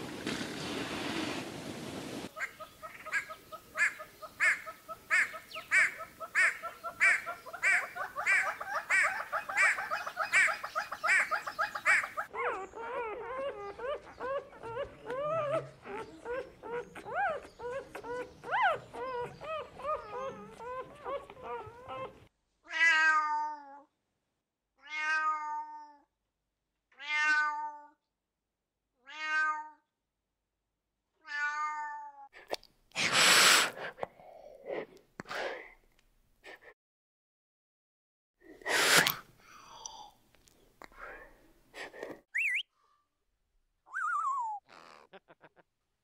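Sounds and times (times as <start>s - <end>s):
cat meowing: 22.7s - 23.8s, 24.8s - 26.0s, 27.0s - 27.9s, 29.0s - 29.8s, 31.2s - 32.3s.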